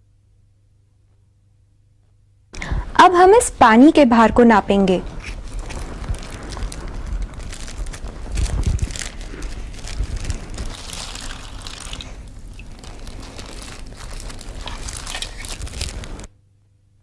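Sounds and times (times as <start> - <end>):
plastic bag crinkling: 5.0 - 16.3
water pouring into bag: 5.2 - 16.3.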